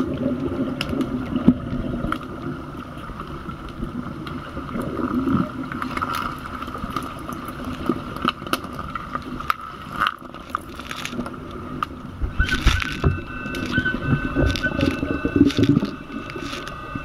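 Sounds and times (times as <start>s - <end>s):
muffled underwater rumble: 0.0s - 17.0s
steady hum: 10.4s - 17.0s.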